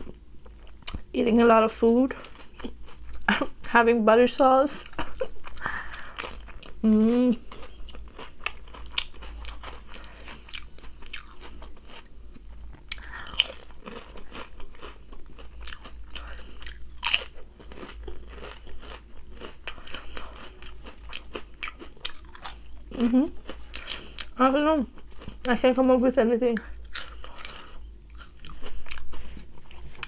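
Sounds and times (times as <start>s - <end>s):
person chewing crunchy food: 2.1s - 3.5s, 4.8s - 25.6s, 26.6s - 30.0s.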